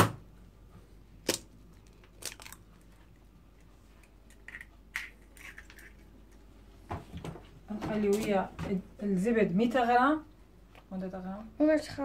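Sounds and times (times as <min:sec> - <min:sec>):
egg cracking on metal bowl: 0:01.2 - 0:02.7, 0:04.0 - 0:06.4
eggshell handling noises: 0:01.2 - 0:06.5.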